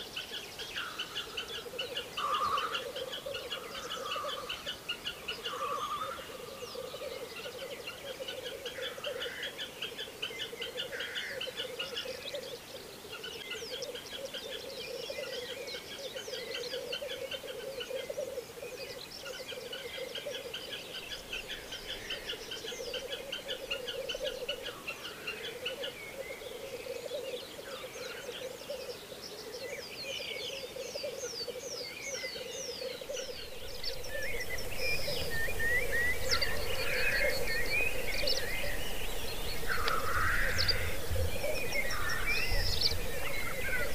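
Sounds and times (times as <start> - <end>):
grouse bubbling chorus: 33.0 - 43.9.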